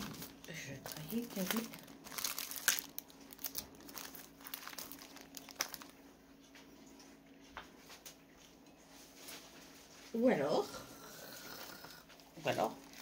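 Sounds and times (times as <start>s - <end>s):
plastic bags rustling: 0.0s - 6.1s, 12.2s - 13.0s
low steady hum: 0.0s - 13.0s.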